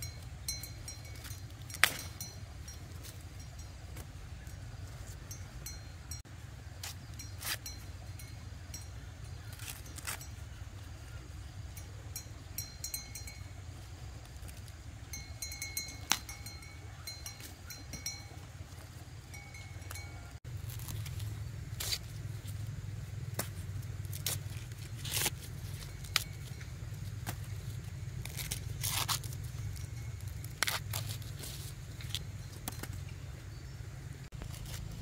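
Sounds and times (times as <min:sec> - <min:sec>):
low background rumble: 0:00.0 - 0:35.0
corn husks tearing and rustling: 0:01.1 - 0:02.4, 0:09.3 - 0:11.3, 0:19.9 - 0:33.1, 0:34.3 - 0:35.0.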